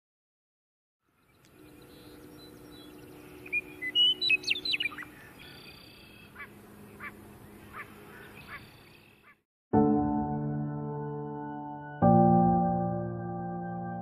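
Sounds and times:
birds chirping and whistling: 0:01.2 - 0:09.4
downward-sliding bird calls: 0:03.4 - 0:09.4.

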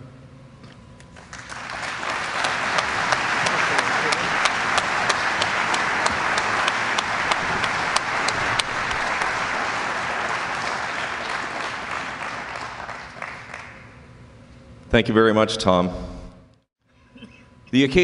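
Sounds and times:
audience applauding: 0:01.2 - 0:14.0
hands clapping sharply: 0:01.2 - 0:14.0.

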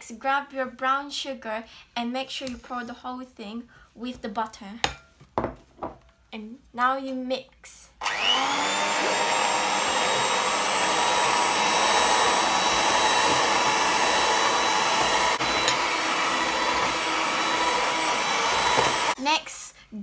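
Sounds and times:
electric hand mixer whining: 0:08.0 - 0:19.2.

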